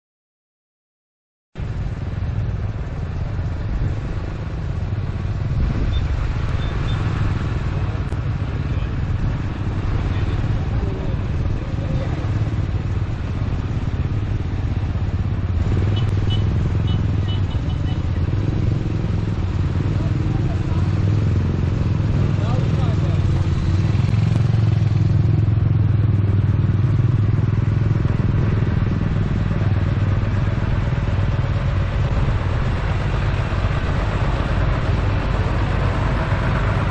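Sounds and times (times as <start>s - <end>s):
tractor engines running: 1.6s - 36.9s
people's voices: 9.8s - 12.7s, 19.7s - 23.9s.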